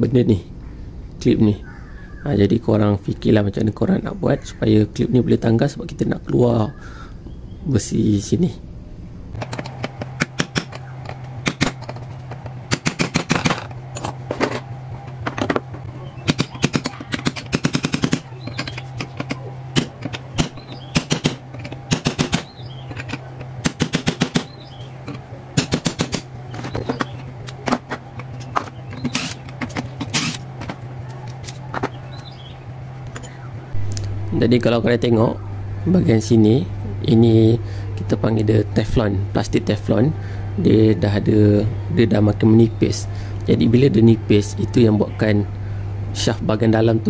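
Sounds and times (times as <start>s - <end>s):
steady low hum: 0.0s - 47.0s
hammer tapping steel punch: 9.4s - 14.2s, 15.1s - 29.1s.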